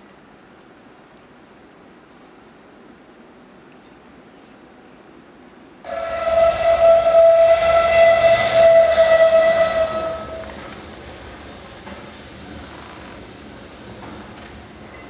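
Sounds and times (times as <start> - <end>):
whistle blast with hiss: 5.9 - 10.7.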